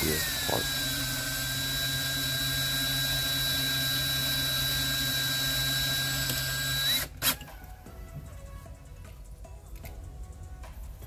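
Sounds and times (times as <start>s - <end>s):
cordless drill whining: 0.0s - 7.6s.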